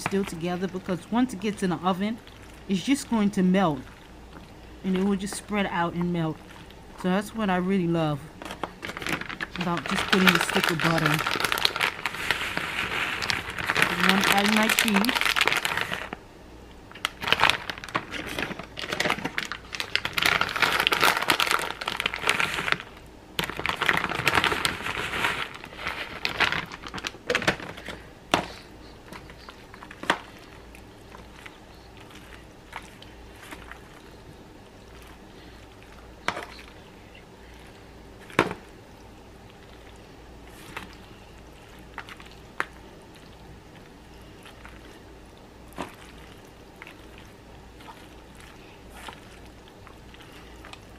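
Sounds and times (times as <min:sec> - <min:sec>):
foil pan crinkling and rustling: 0:08.4 - 0:16.2, 0:17.0 - 0:34.2.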